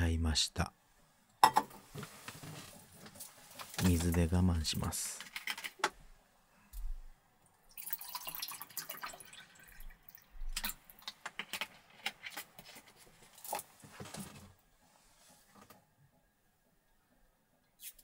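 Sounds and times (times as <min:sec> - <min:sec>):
water pouring into a cup: 0:07.7 - 0:11.1.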